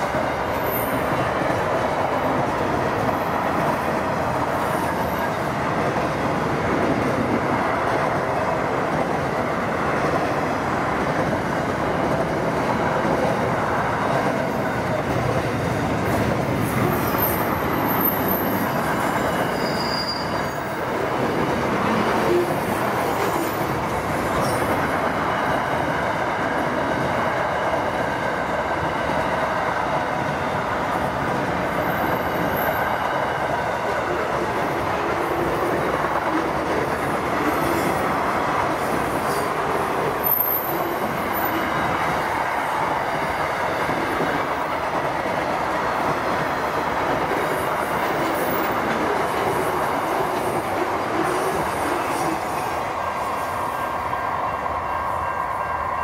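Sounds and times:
train wheels rumbling on rails: 0.0s - 56.0s
high wheel squeals: 16.9s - 20.8s.

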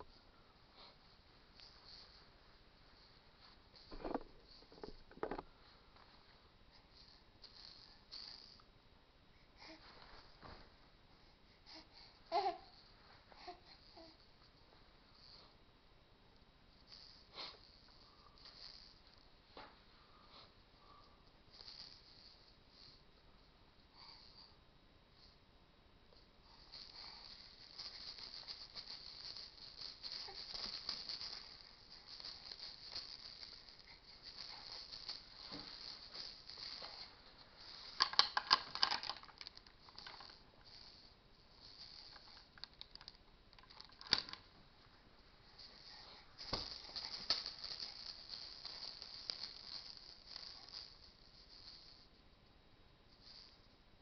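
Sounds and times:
plastic bead rattle shaken: 3.8s - 5.4s, 7.0s - 8.6s, 16.9s - 19.2s, 21.5s - 23.0s, 26.5s - 44.5s, 45.4s - 52.1s, 53.2s - 53.6s.

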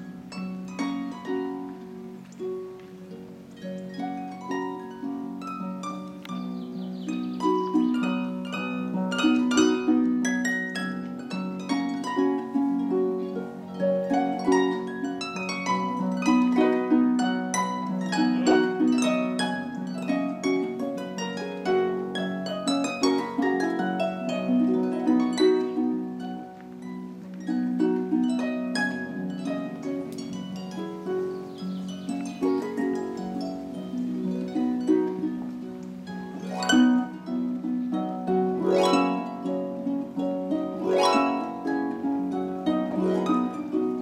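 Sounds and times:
harp plucked notes: 0.0s - 44.0s.

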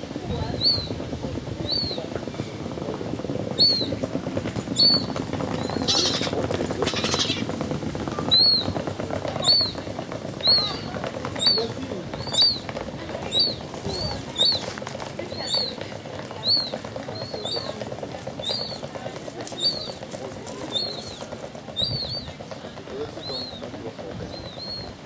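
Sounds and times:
gull chick peeping: 4.8s - 7.5s, 8.3s - 8.8s, 9.4s - 9.8s, 10.4s - 17.7s, 18.3s - 20.0s, 20.6s - 22.4s, 23.1s - 25.0s.

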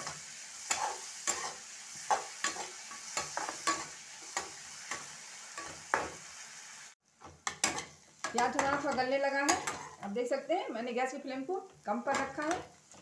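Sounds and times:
spatula scraping and tapping pan: 0.0s - 6.2s, 7.2s - 10.2s, 11.6s - 13.0s
onions sizzling in oil: 0.0s - 13.0s.

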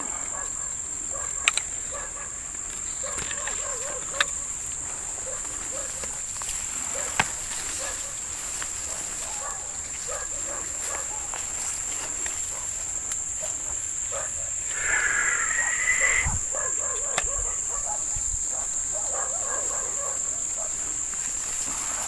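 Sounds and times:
high-pitched insect chorus: 0.0s - 22.0s
warbling call: 14.7s - 16.5s.

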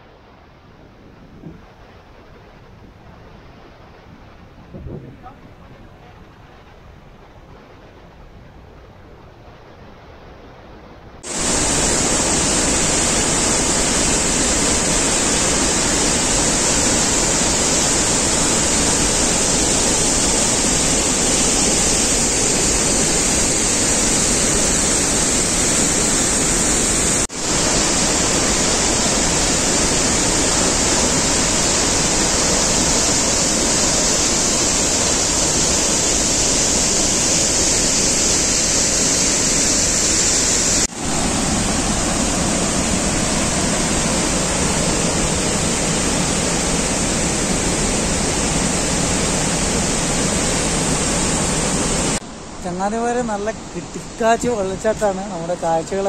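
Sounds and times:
waterfall rushing: 11.2s - 56.0s.

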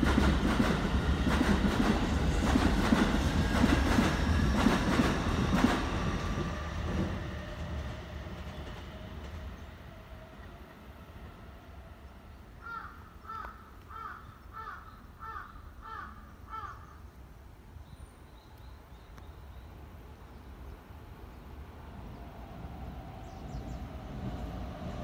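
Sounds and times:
train rumble: 0.0s - 13.2s, 19.8s - 25.0s.

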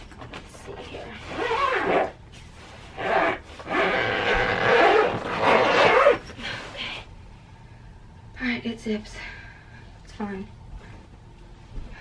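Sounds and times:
suitcase zipper pulled: 1.3s - 2.2s, 2.9s - 6.2s.

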